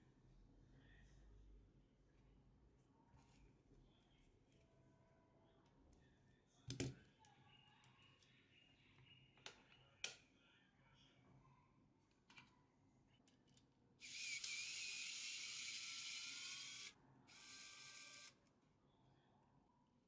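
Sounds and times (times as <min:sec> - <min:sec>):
small motorised tool whirring: 0:14.0 - 0:18.4.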